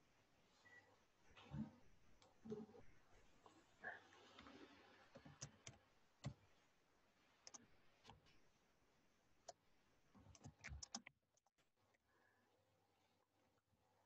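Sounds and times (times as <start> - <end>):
keyboard keys typing: 5.1 - 6.4, 7.4 - 8.2, 10.2 - 11.1.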